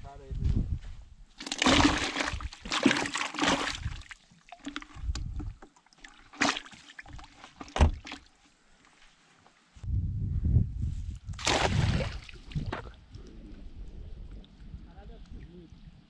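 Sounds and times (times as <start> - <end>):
water splashing in bucket: 1.4 - 8.3, 11.4 - 13.0
low rumble: 9.8 - 11.4.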